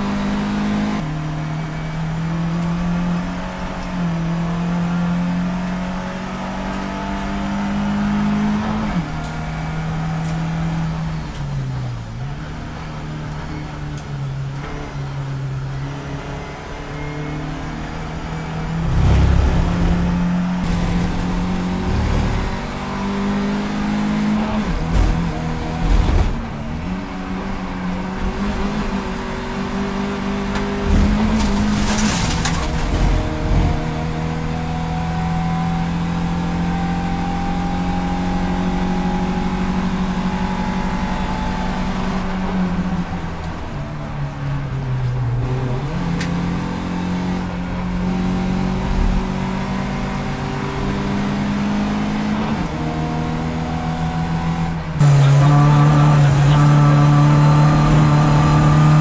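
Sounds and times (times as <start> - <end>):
race car engine pulling through gears: 0.0 - 59.0.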